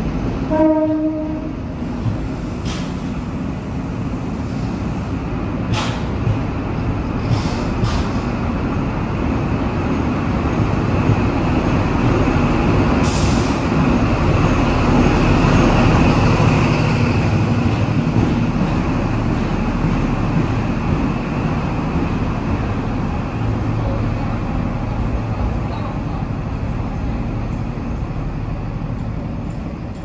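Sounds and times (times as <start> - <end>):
train carriages rumbling past: 0.0 - 30.0.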